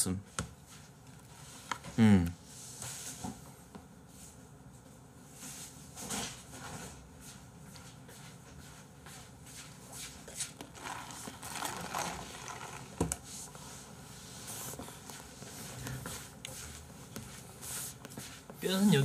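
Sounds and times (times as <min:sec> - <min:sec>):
handling clicks scrapes and rustles: 0:10.6 - 0:13.0.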